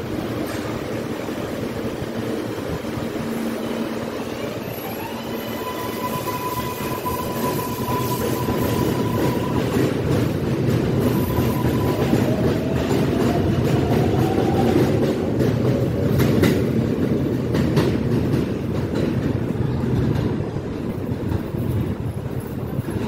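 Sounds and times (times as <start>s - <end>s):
subway train motor whine: 0.0s - 16.5s
train wheels rumbling and clicking: 0.0s - 23.0s.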